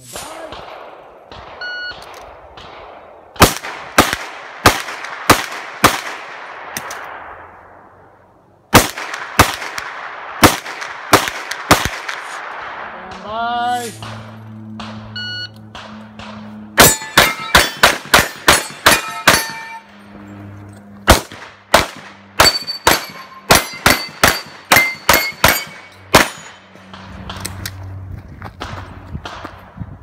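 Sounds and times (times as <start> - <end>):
shot timer beep: 1.6 - 2.0, 15.1 - 15.6
rapid pistol fire: 2.4 - 6.6, 8.7 - 13.3, 15.7 - 19.6, 21.1 - 27.4
steel targets ringing: 16.7 - 20.5, 22.3 - 26.7.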